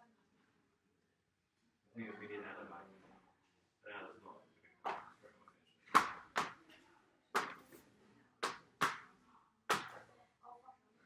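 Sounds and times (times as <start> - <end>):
ball slapping against paper: 5.9 - 6.6, 7.4 - 7.8, 8.4 - 10.1.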